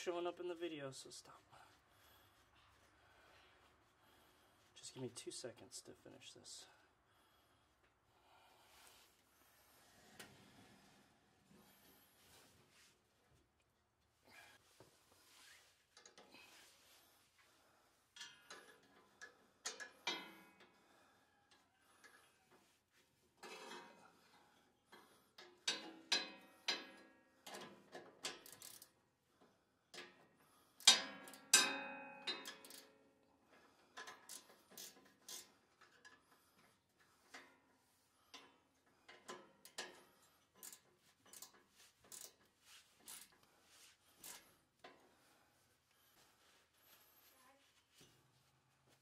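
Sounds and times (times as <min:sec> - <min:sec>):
wrenches clinking on metal: 0:25.6 - 0:28.9, 0:30.8 - 0:33.0, 0:34.0 - 0:36.2, 0:39.0 - 0:43.5.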